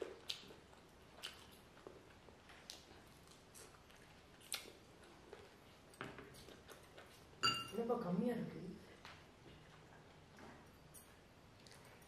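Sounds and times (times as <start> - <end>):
chewing noodles: 0.0 - 7.4, 8.9 - 12.0
wet mouth clicks and smacks: 2.5 - 4.8.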